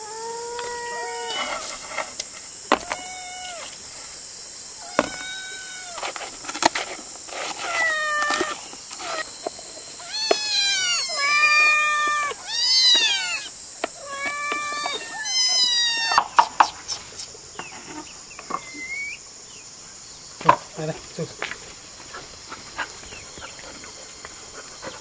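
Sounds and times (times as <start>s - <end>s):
cats meowing: 0.0s - 1.8s, 2.7s - 3.8s, 4.8s - 6.1s, 7.5s - 9.3s, 10.0s - 16.4s.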